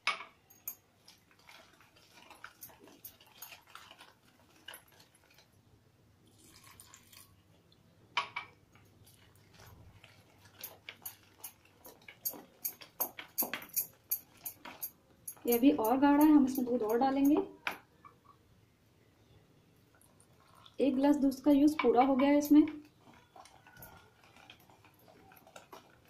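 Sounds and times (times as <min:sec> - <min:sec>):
milk pouring: 0:00.8 - 0:07.8, 0:19.9 - 0:22.0, 0:22.7 - 0:26.0.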